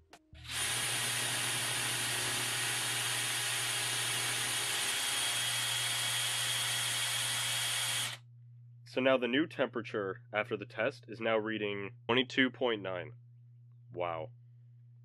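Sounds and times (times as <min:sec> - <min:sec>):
cordless drill whining: 0:00.4 - 0:08.2.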